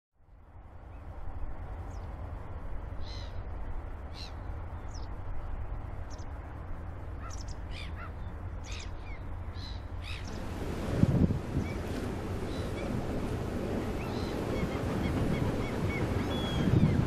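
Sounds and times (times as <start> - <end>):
steady low rumble: 0.2 - 17.0
birds crying: 7.2 - 10.4, 13.8 - 17.0.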